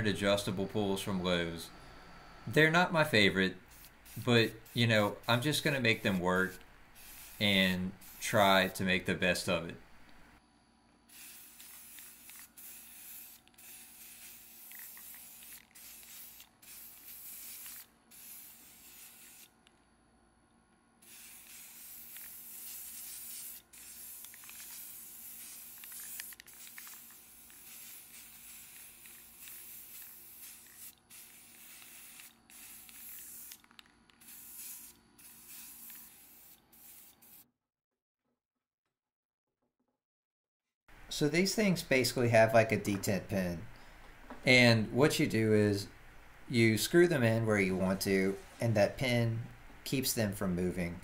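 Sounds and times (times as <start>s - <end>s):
spray paint can hissing: 3.6s - 8.8s, 11.1s - 19.7s, 21.0s - 37.4s.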